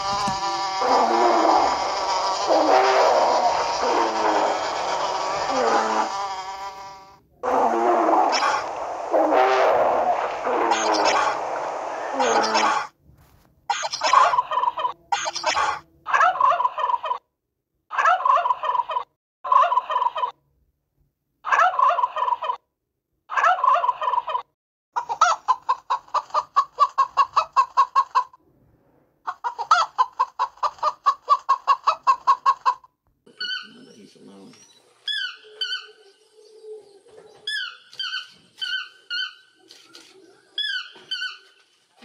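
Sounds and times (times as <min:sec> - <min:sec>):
turkey gobbling: 0:00.1 - 0:06.0, 0:07.4 - 0:12.9, 0:13.7 - 0:17.2, 0:18.0 - 0:20.4, 0:21.5 - 0:22.6, 0:23.3 - 0:24.4, 0:25.0 - 0:28.4, 0:29.3 - 0:33.9, 0:35.1 - 0:36.0.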